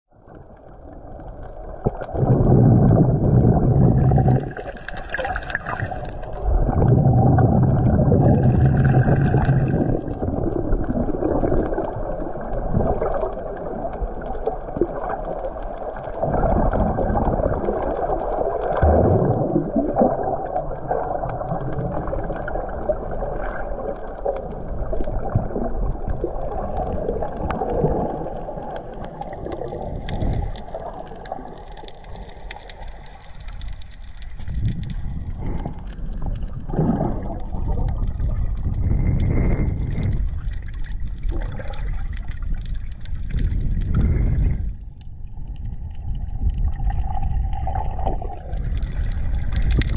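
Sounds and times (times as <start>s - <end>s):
gurgling bubble bursts: 0.1s - 49.9s
muffled underwater ambience: 0.1s - 49.9s.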